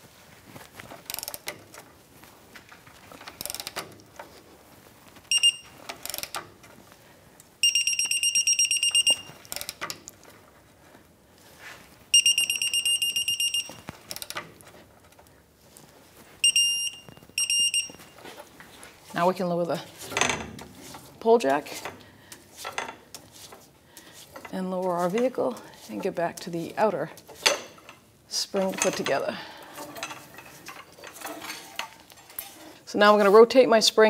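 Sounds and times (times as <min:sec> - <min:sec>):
ratchet clicks: 0:01.1 - 0:01.6, 0:03.4 - 0:03.9, 0:05.9 - 0:06.4
torque wrench beeping: 0:05.3 - 0:05.8, 0:07.6 - 0:09.3, 0:12.1 - 0:14.3, 0:16.4 - 0:18.1.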